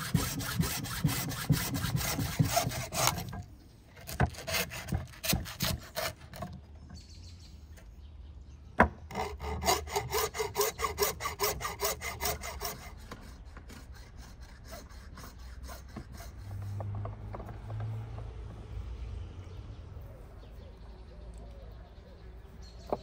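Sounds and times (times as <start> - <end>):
hand saw cutting: 0.0 - 3.4, 4.0 - 6.6, 9.1 - 17.6.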